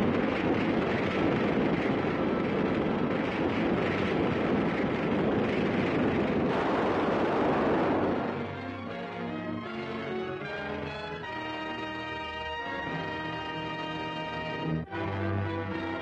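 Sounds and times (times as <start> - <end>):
explosion and fire rumble: 0.0 - 8.7.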